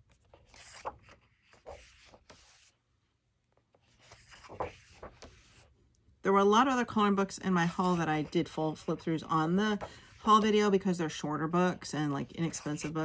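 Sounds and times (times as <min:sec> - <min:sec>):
paper pages turning: 0:00.0 - 0:02.8, 0:03.5 - 0:05.7.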